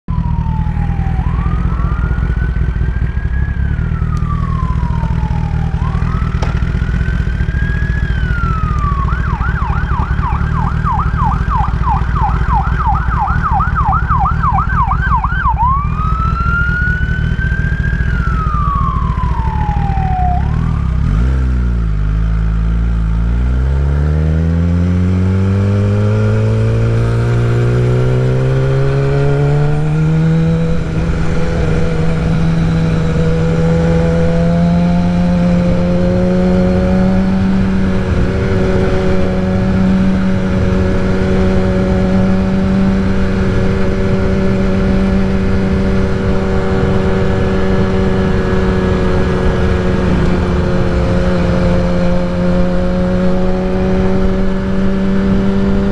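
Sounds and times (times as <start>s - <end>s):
motorcycle engine idling and accelerating: 0.0s - 55.9s
emergency siren wailing and yelping: 0.1s - 21.2s, 25.8s - 45.0s.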